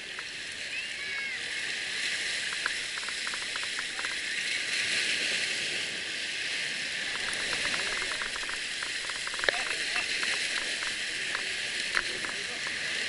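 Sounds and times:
sea water washing and splashing: 0.0 - 13.0
fishing reel clicking: 2.3 - 4.4, 7.0 - 12.9.

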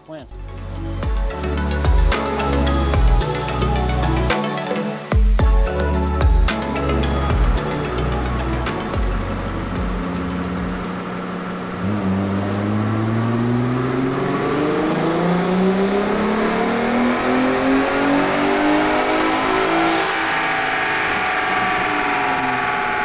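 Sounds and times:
engine revving at full throttle: 7.2 - 23.0
turbo whistle rising: 19.2 - 23.0.

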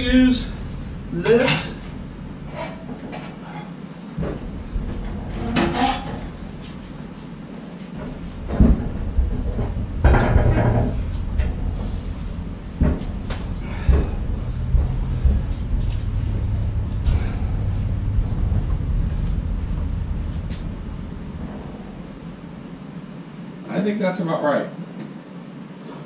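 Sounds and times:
wheels rumbling on concrete: 0.0 - 23.4
metal frame clunks: 8.0 - 22.9.

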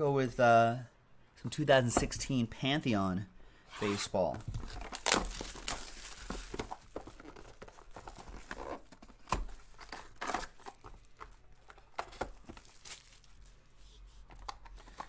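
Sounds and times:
cardboard being handled: 3.8 - 15.0
plastic shrink-wrap crinkling: 4.7 - 13.6.

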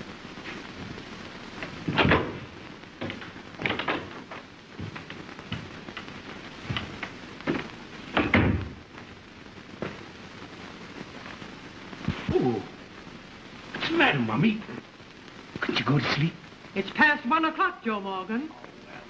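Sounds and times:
film soundtrack hiss: 0.0 - 19.0
footsteps: 0.4 - 8.8, 9.7 - 10.1.

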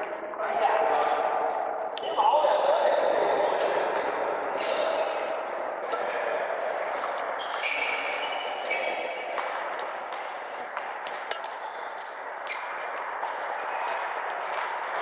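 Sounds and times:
shoes squeaking on court floor: 7.0 - 15.0.

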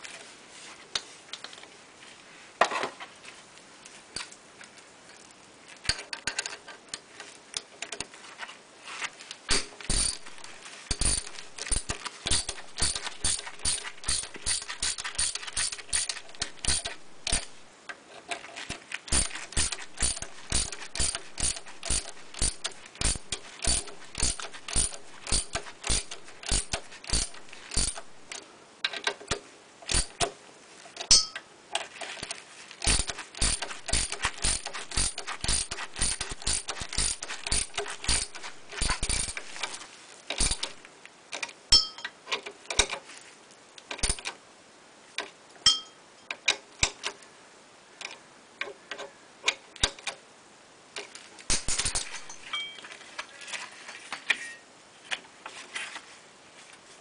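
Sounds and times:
ratchet wrench clicking: 9.9 - 17.6, 19.1 - 28.2, 29.9 - 30.3, 32.8 - 40.8.

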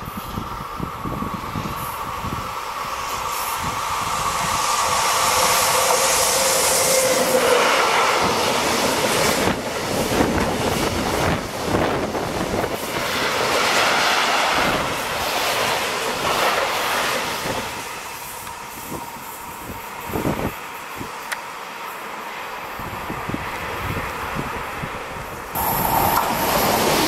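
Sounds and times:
electric locomotive high tone: 0.0 - 12.8, 25.5 - 27.0
train wheels rumbling and clacking: 0.0 - 22.1, 22.8 - 27.0.

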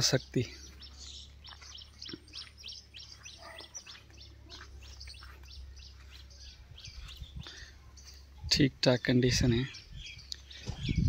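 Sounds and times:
small birds chirping: 0.0 - 11.0.

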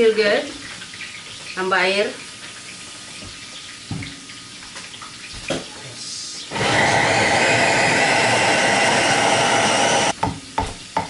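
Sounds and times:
electric blender running: 6.5 - 10.2.

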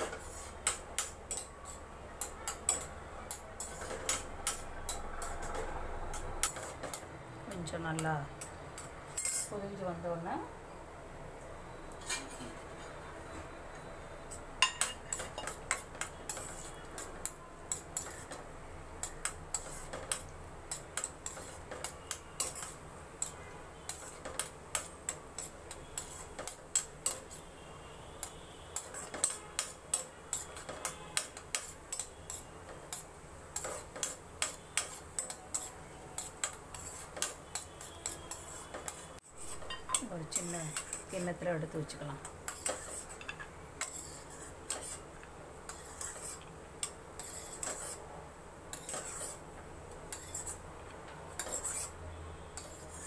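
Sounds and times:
cashews frying clicks and pops: 0.0 - 9.0, 14.8 - 41.2, 42.2 - 48.0.

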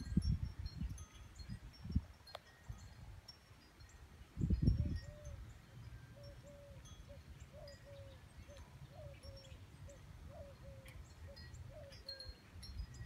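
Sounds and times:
wind chime tones: 0.0 - 13.0.

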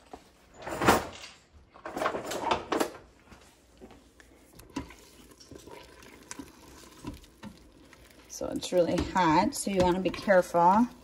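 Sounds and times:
kitchen drawer opening and shutting: 0.4 - 3.1.

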